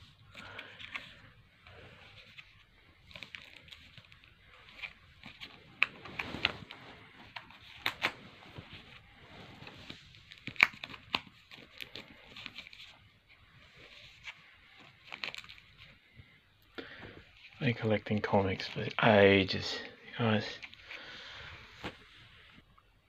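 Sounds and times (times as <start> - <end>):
plastic bags crinkling: 13.9 - 16.1.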